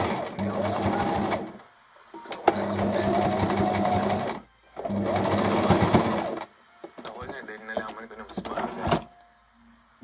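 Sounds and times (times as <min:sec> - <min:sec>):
sewing machine stitching: 0:00.0 - 0:01.6, 0:02.3 - 0:06.5.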